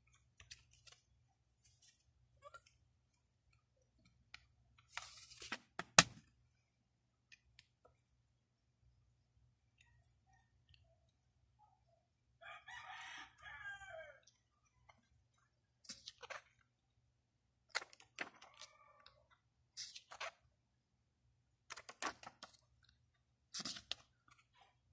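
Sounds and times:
paper booklet rustling: 0.0 - 2.8, 4.8 - 5.8, 23.5 - 24.5
plastic case snapping: 5.8 - 6.2.

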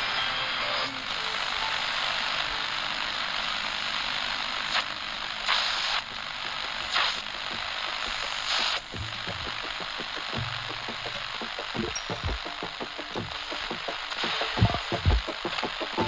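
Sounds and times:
static hiss: 0.0 - 16.0
short noise bursts: 4.6 - 16.0.

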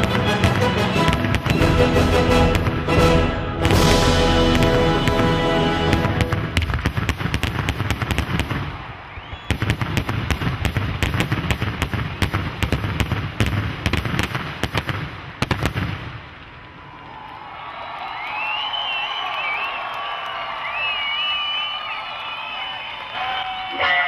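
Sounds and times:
fireworks bursting: 0.0 - 17.2.

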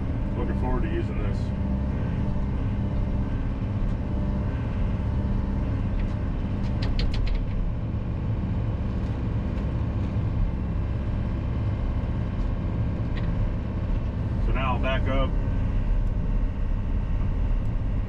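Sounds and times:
excavator engine and hydraulics: 0.0 - 18.0.

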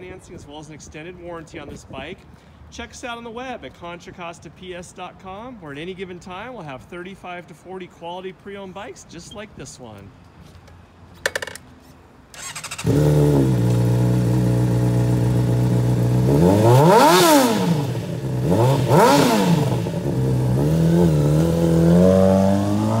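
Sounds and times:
motorcycle engine starting: 12.3 - 23.0
motorcycle engine idling and revving: 12.4 - 23.0.

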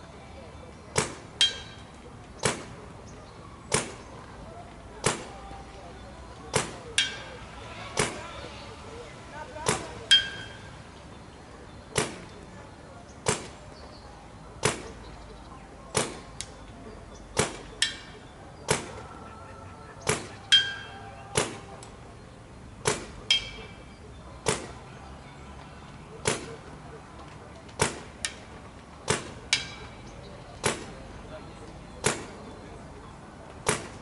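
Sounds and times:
paintball marker firing: 1.0 - 2.8, 3.7 - 4.1, 5.0 - 5.4, 6.5 - 7.1, 8.0 - 8.2, 11.9 - 12.4, 13.2 - 13.6, 14.6 - 15.0, 15.9 - 16.6, 17.4 - 18.1, 18.7 - 19.0, 20.0 - 20.6, 21.3 - 21.9, 22.8 - 23.6, 24.4 - 24.8, 26.2 - 26.7, 27.7 - 28.4, 29.0 - 29.9, 30.6 - 31.0, 32.0 - 32.4, 33.6 - 34.0
ball ringing on metal target: 1.4 - 1.9, 7.0 - 7.4, 10.1 - 10.7, 20.5 - 21.0, 23.2 - 23.9.

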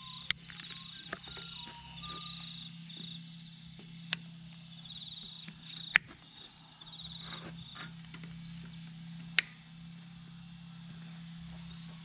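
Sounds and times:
side cutters snipping cable ties: 5.9 - 6.2, 9.3 - 9.7.

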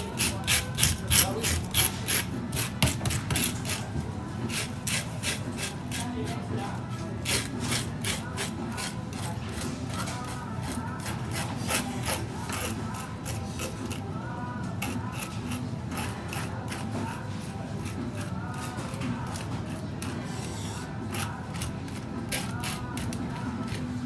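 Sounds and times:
fish scaler scraping scales: 0.0 - 3.9.

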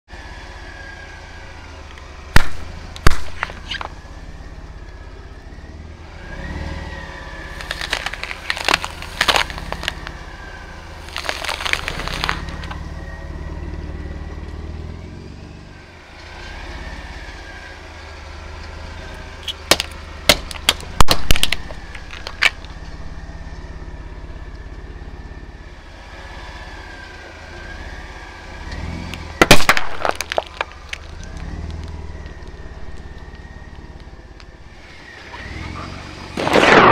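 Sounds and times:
truck engine running: 0.0 - 36.9
tire crushing plastic bottles: 1.8 - 4.4, 7.2 - 13.4, 18.6 - 24.8, 28.2 - 36.9.

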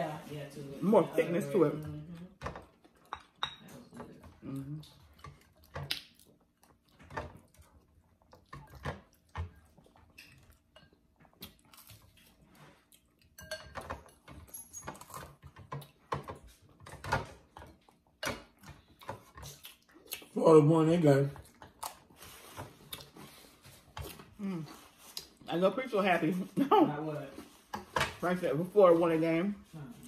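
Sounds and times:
spoons clinking on glass bowls: 3.1 - 3.8, 13.4 - 15.0
mouth sounds of eating: 3.9 - 6.9.

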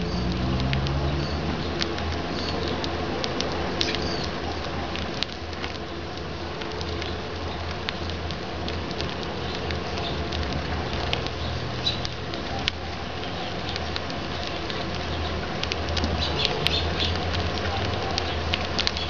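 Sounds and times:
birds pecking taps: 6.7 - 19.0.

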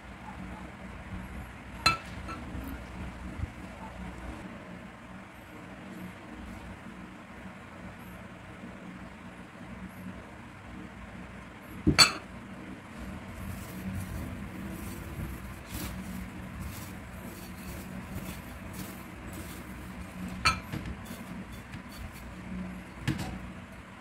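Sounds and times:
steady low hum: 0.0 - 24.0
breadcrumbs rustling: 13.0 - 22.6.

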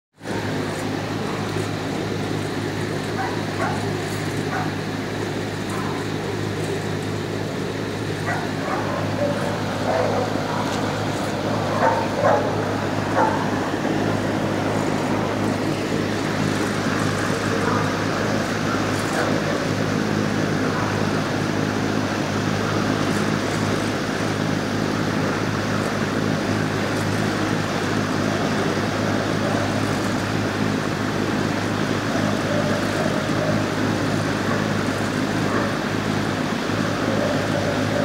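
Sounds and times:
low mechanical hum: 0.2 - 38.0
dogs barking: 0.3 - 21.2, 31.8 - 38.0.

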